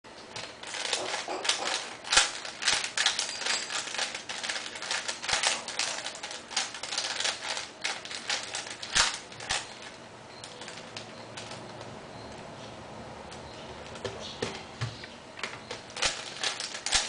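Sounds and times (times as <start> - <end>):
plastic puzzle cube clicking turns: 0.6 - 9.7, 15.9 - 17.0.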